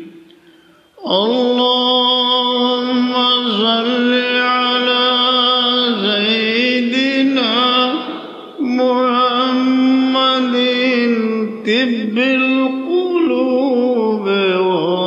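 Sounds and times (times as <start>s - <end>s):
man chanting: 1.0s - 15.0s.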